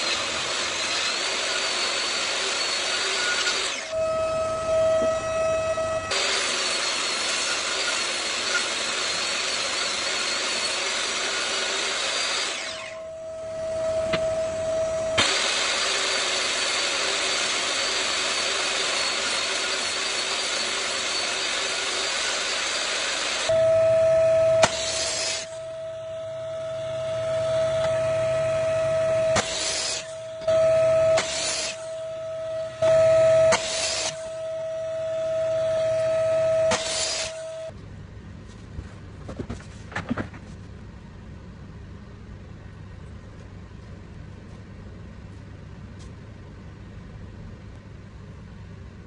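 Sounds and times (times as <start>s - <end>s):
miter saw chop cuts: 0.0s - 4.2s, 6.0s - 13.1s, 14.0s - 23.6s, 24.4s - 25.8s, 26.6s - 34.5s, 35.4s - 37.7s
power saw running: 0.0s - 37.7s
steady high whine: 0.0s - 39.8s.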